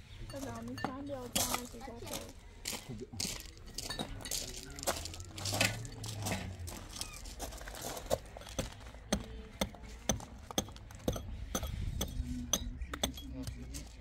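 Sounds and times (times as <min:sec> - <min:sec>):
shovel scraping in gravel: 0:03.9 - 0:08.6.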